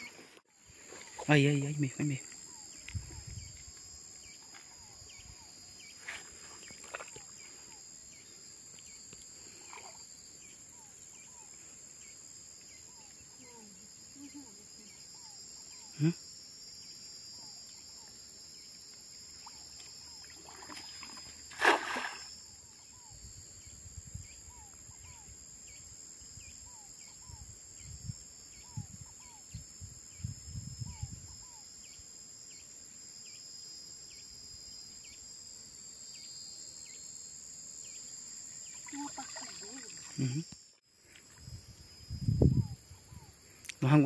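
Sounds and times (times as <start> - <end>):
high insect drone: 0.0 - 44.0
loud splash in water: 21.5 - 22.3.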